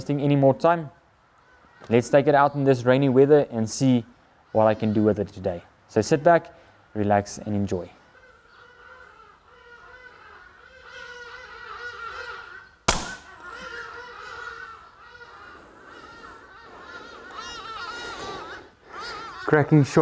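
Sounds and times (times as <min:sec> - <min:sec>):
farm birds calling: 0:00.0 - 0:20.0
air rifle shot: 0:12.9 - 0:13.4.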